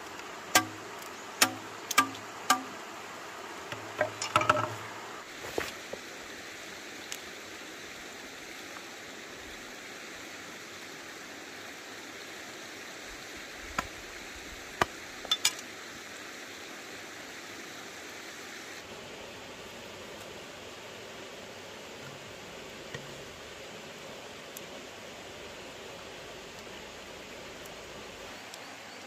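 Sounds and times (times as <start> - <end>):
stream flowing: 0.0 - 29.0.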